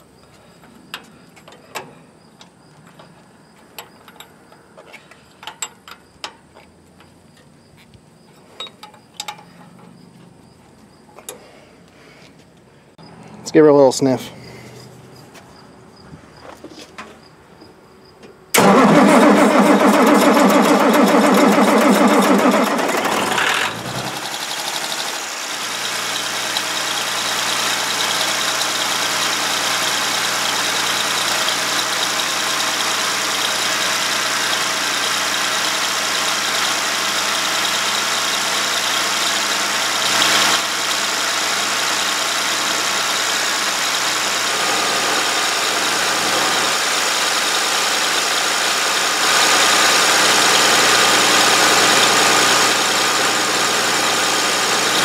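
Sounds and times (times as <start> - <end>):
diesel engine idling: 18.5 - 55.0.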